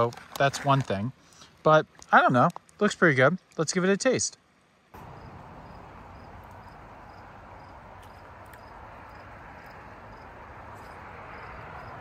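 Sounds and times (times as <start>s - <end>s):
outdoor background hiss and rumble: 0.0s - 12.0s
faint insect chirping: 4.4s - 12.0s.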